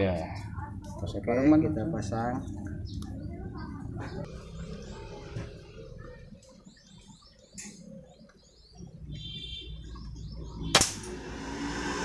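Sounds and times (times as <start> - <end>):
small birds chirping: 0.0 - 11.0
air rifle shot crack: 10.7 - 11.3.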